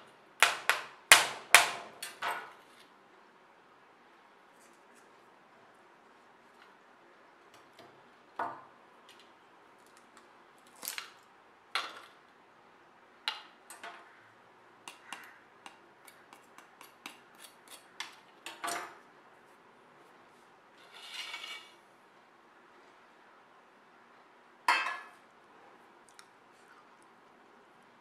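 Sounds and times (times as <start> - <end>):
scraping rustle: 20.2 - 21.8.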